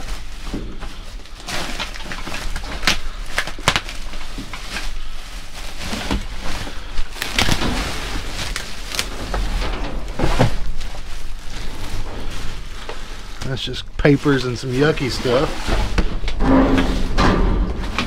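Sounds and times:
papers and bags rustling: 0:00.0 - 0:18.0
items knocking and clattering: 0:05.8 - 0:13.2, 0:15.2 - 0:18.0.

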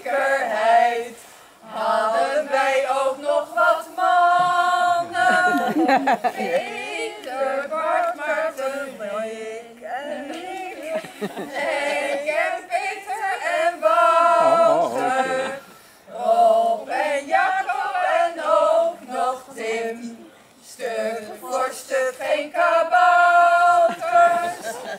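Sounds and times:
women singing together: 0:00.0 - 0:24.9.

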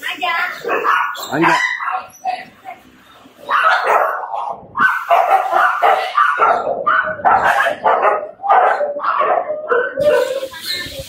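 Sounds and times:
dogs barking together: 0:00.5 - 0:02.2, 0:03.4 - 0:10.6.

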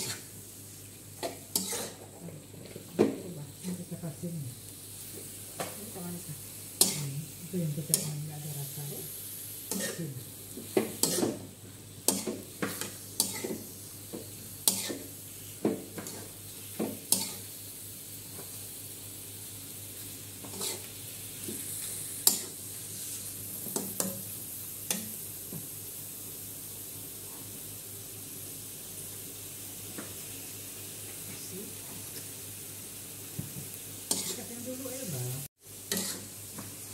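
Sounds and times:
metal spatula scraping a wok: 0:00.0 - 0:00.3, 0:01.2 - 0:02.0, 0:12.1 - 0:13.6, 0:20.4 - 0:20.9, 0:34.1 - 0:34.5, 0:35.9 - 0:36.3
meat sizzling in a wok: 0:00.0 - 0:36.9.

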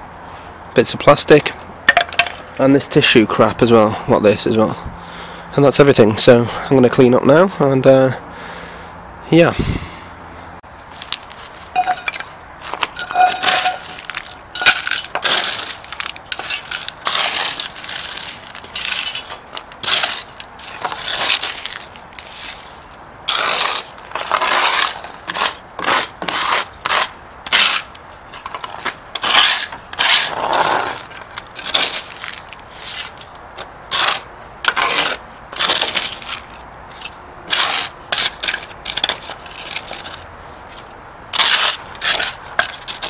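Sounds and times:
metal scoop scraping gritty fragments: 0:11.7 - 0:33.3, 0:33.9 - 0:43.0.

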